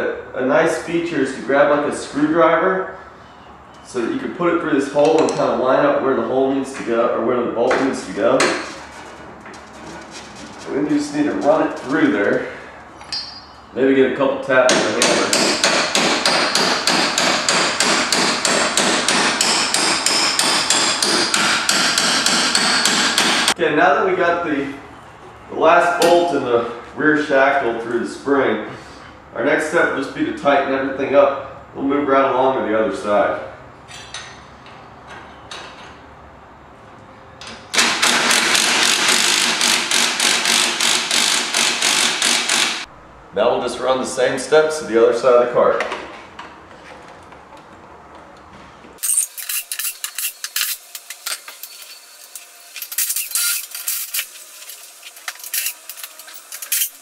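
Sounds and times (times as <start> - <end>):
tools clinking: 13.0 - 13.7, 49.0 - 57.0
impact driver rattling: 37.8 - 42.9.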